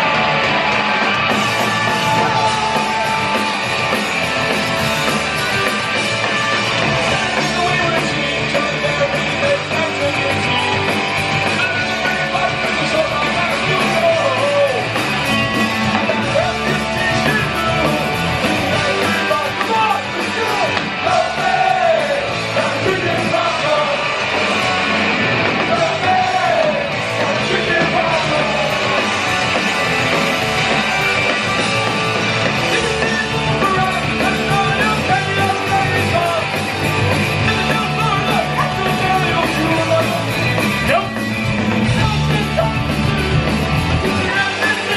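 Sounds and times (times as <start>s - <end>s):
shouted sung lead vocal: 0.0s - 4.0s, 11.5s - 24.6s, 25.3s - 29.2s, 32.6s - 36.6s, 44.0s - 44.9s
punk rock band playing: 0.0s - 44.9s.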